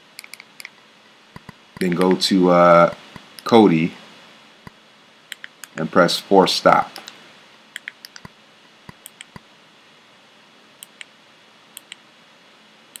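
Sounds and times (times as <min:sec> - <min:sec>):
remote control buttons clicking: 0:00.2 - 0:00.8, 0:05.3 - 0:05.8, 0:07.8 - 0:08.3, 0:08.9 - 0:09.4, 0:11.8 - 0:12.0.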